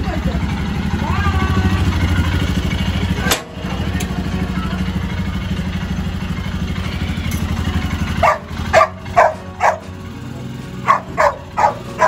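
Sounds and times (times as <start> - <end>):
motorcycle engine idling: 0.0 - 12.0
dog barking: 8.2 - 10.0, 10.8 - 12.0.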